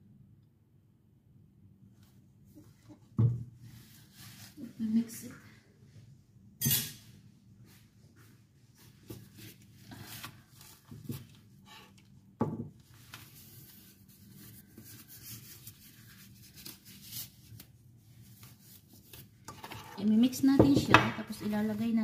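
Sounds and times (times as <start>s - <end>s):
plastic glove rustling: 3.7s - 5.2s, 8.6s - 22.0s.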